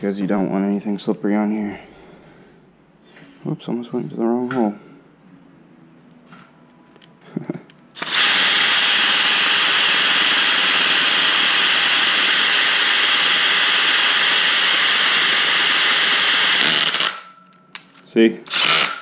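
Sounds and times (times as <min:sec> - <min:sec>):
cordless drill whining: 0:08.0 - 0:17.3, 0:18.5 - 0:19.0.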